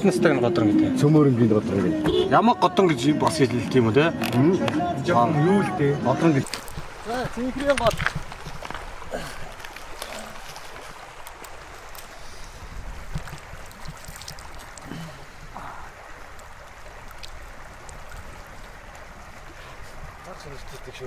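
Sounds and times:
river running over stones: 0.0 - 21.0
hands splashing water: 6.4 - 19.0.

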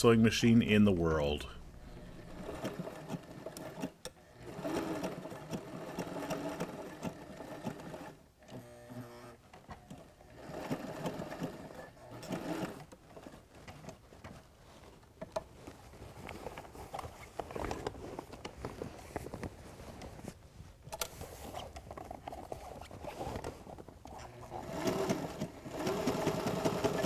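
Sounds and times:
sewing machine stitching: 1.8 - 14.0, 22.2 - 27.0.

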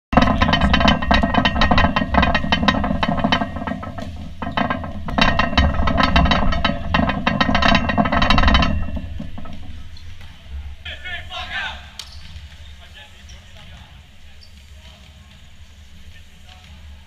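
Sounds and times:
rapid rattling clicks: 0.1 - 9.8.

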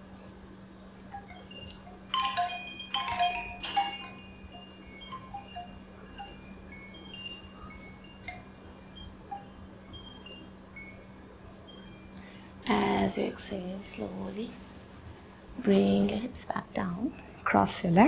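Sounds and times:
wind chimes tinkling: 1.1 - 13.3.

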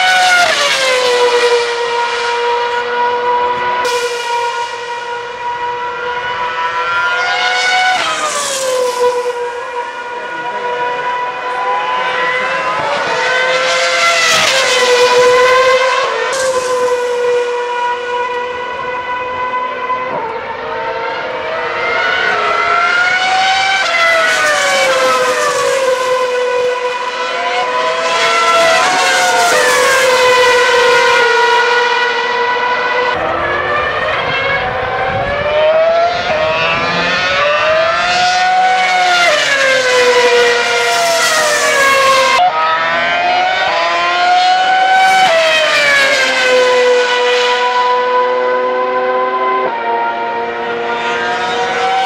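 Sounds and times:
racing cars passing at high revs: 0.0 - 52.0.

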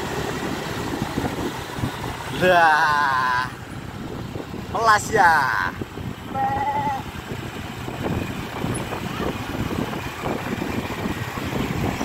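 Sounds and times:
motorcycle engine running: 0.0 - 12.0
wind on microphone: 0.8 - 2.2, 3.7 - 12.0.

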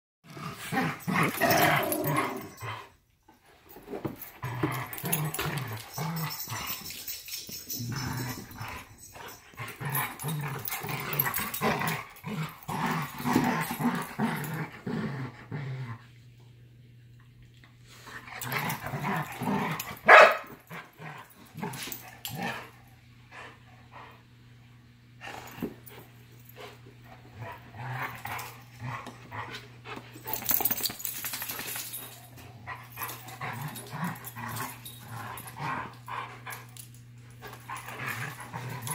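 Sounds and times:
dogs growling: 0.2 - 3.0, 4.1 - 16.1, 18.1 - 22.8, 27.2 - 30.8, 32.2 - 38.9
dog barking: 20.1 - 20.5.

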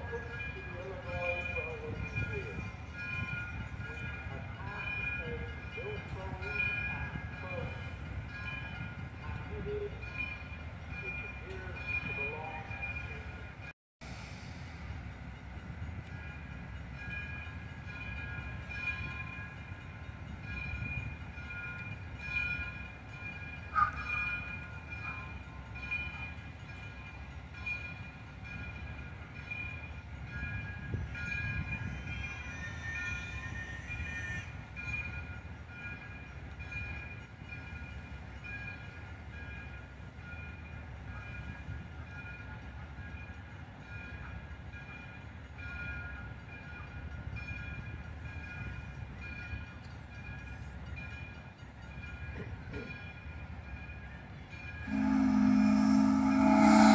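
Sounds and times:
locomotive bell ringing: 0.0 - 13.7, 15.2 - 56.9
locomotive rumble: 0.0 - 56.9.

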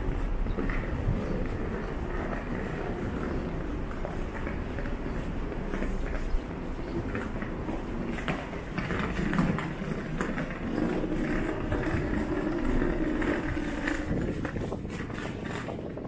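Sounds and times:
footsteps: 0.0 - 16.0
steady low rumble: 0.0 - 16.0
suitcase wheels rumbling on tiles: 0.0 - 16.0.

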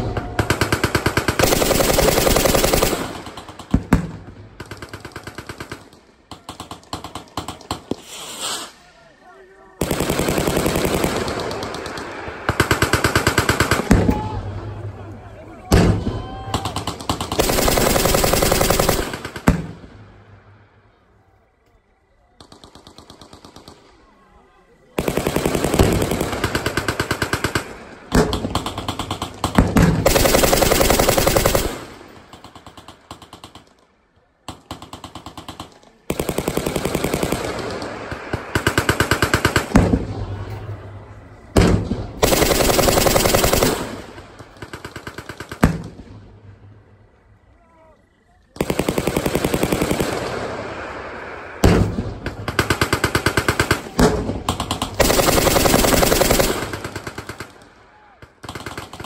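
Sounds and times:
machine gun bursts: 0.0 - 3.7, 9.8 - 13.9, 16.8 - 19.5, 28.3 - 33.7, 42.2 - 45.6, 52.5 - 57.6
distant machine gun bursts: 0.0 - 8.6, 9.8 - 14.2, 15.7 - 20.2, 25.0 - 47.2, 48.6 - 59.0.

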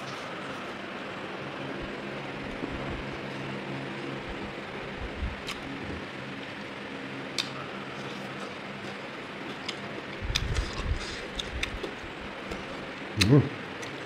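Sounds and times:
fan-like background hiss: 0.0 - 14.0
person eating: 7.3 - 14.0.

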